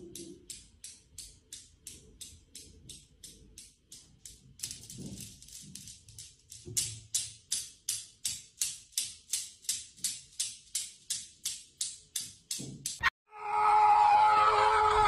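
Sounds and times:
steel balls clicking: 0.0 - 13.1.

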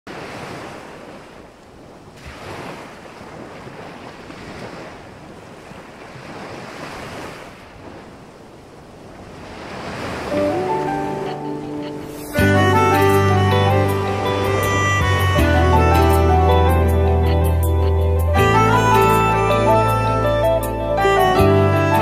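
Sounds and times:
sea waves washing: 0.1 - 17.5
music: 10.3 - 22.0.

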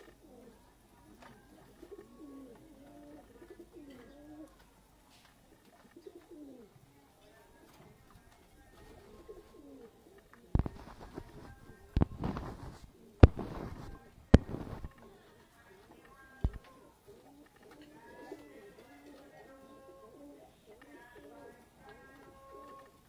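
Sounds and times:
pigeons cooing: 0.0 - 4.8, 5.5 - 6.8, 7.5 - 23.0.

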